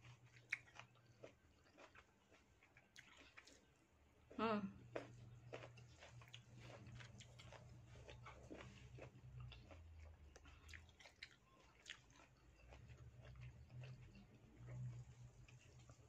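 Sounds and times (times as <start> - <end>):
wet mouth chewing clicks: 5.5 - 15.0.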